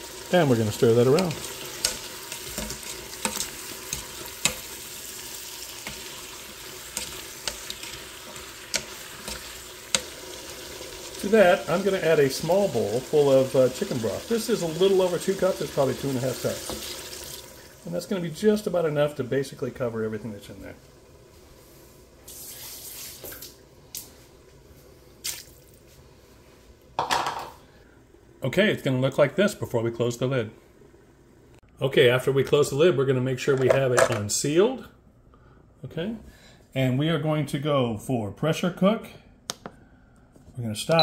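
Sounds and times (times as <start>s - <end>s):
food sizzling in a metal pot: 0.0s - 18.9s, 22.2s - 23.5s
liquid splashing into pot: 25.2s - 25.8s.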